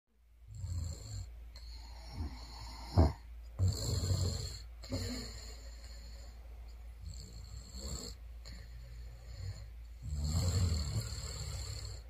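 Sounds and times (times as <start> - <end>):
woman snoring: 0.5 - 6.4, 7.0 - 12.0
loud snort: 1.9 - 5.5, 9.4 - 12.0.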